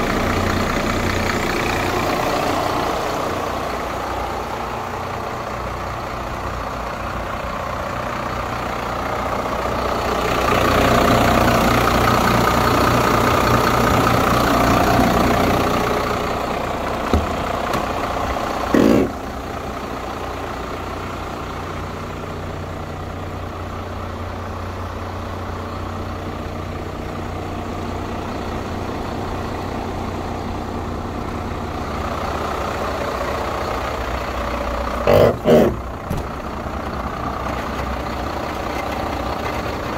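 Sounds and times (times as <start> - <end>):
diesel truck engine idling: 0.0 - 39.9.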